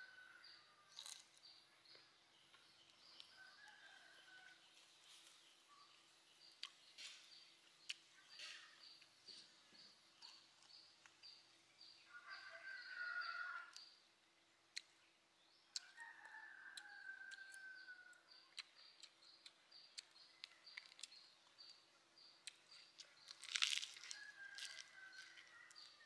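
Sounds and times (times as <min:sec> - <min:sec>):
small birds chirping: 0:00.0 - 0:26.0
crunchy bite of food: 0:00.6 - 0:03.9, 0:15.7 - 0:21.8, 0:22.4 - 0:26.0
rooster crowing: 0:12.1 - 0:13.8, 0:16.0 - 0:18.2, 0:24.1 - 0:26.0.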